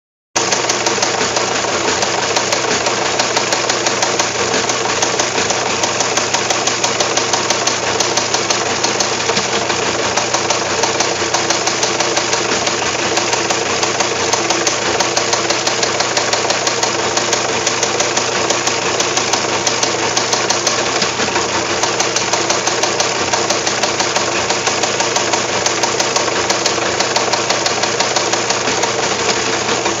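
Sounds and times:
teleprinter clattering: 0:00.4 - 0:30.0.

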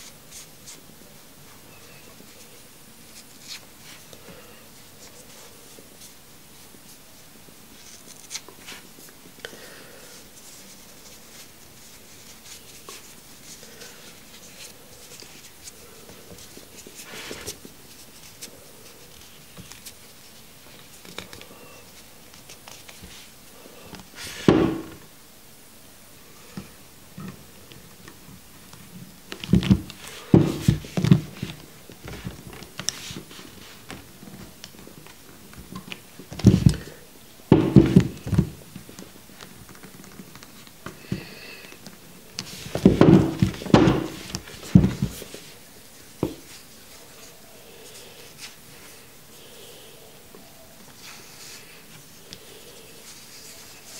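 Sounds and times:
faint clicks and rustles: 0:10.1 - 0:24.2, 0:26.5 - 0:49.0.

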